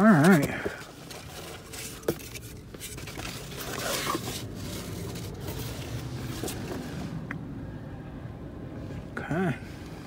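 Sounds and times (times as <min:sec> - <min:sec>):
cardboard and foam rustling: 0:00.0 - 0:07.2.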